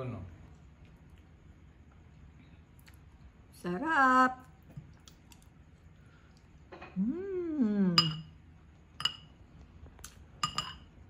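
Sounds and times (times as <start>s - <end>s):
person humming with enjoyment: 7.0s - 8.0s
cutlery clinking on ceramic bowl: 8.0s - 8.3s, 9.0s - 9.3s, 10.4s - 10.9s.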